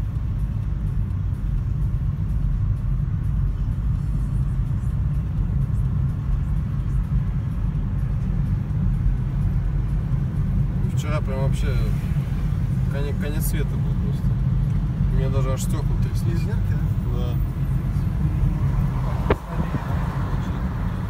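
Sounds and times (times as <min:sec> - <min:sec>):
car engine and tyre noise: 0:00.0 - 0:21.0.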